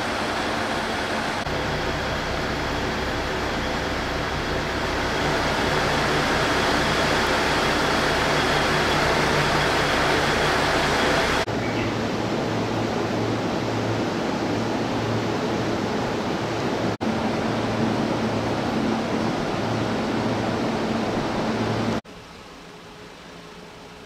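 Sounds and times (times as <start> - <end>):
train equipment hiss and hum: 0.0 - 24.0.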